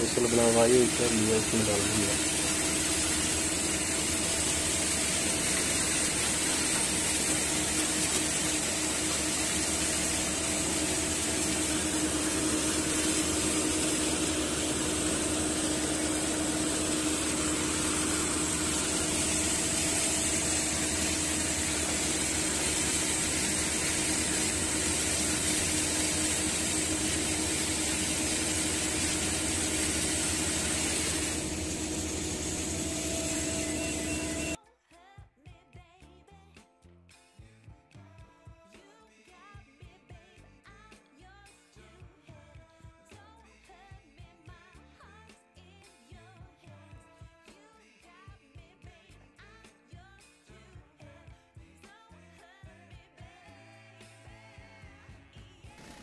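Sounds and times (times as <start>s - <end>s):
elevator discharging chopped cane: 0.0s - 34.6s
harvester machinery drone: 0.0s - 34.6s.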